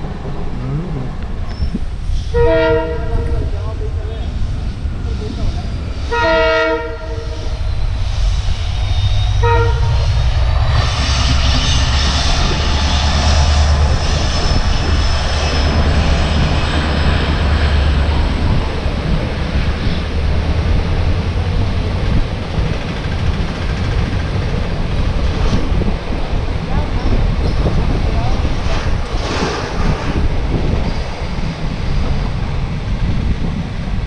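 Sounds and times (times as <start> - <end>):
train rumbling by: 0.0 - 34.0
locomotive horn blast: 2.3 - 3.4, 6.1 - 7.6, 9.3 - 10.1.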